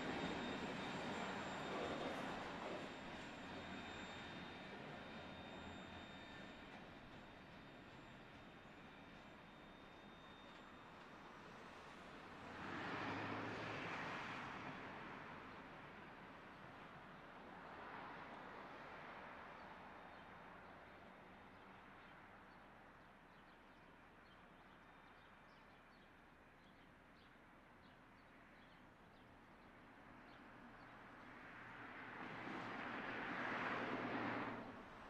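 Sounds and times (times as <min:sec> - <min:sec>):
distant train rumble: 0:00.0 - 0:13.1, 0:28.3 - 0:35.0.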